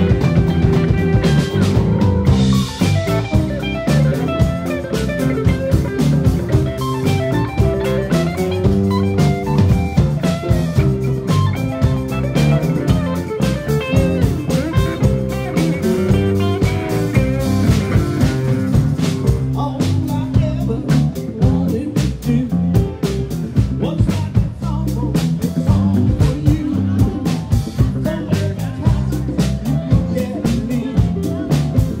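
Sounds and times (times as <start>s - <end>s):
drum hits: 0.0s - 20.5s
live rock band playing: 0.0s - 32.0s.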